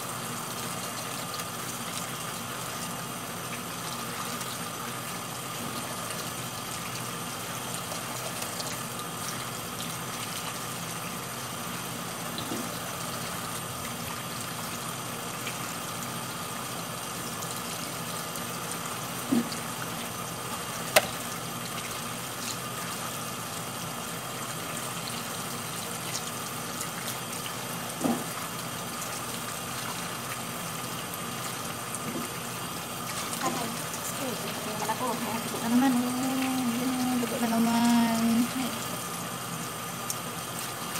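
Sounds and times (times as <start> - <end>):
tap water splashing: 12.3 - 13.2, 19.2 - 20.0, 20.9 - 23.0, 26.0 - 30.4, 31.4 - 32.4.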